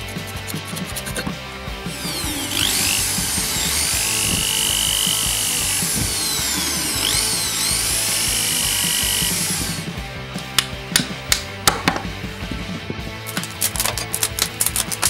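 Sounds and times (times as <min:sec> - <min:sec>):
electric drill whining: 0:00.6 - 0:10.0.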